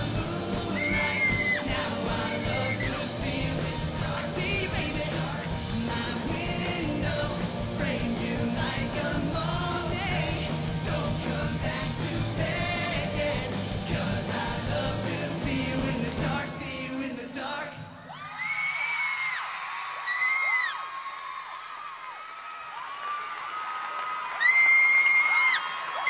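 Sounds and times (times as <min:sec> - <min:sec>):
person singing: 0:00.0 - 0:18.0
drums: 0:00.0 - 0:19.3.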